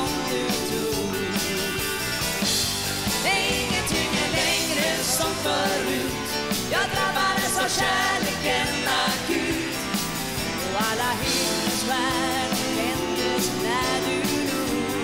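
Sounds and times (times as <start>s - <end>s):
band playing pop song: 0.0s - 15.0s
woman singing: 3.2s - 6.1s, 10.8s - 15.0s.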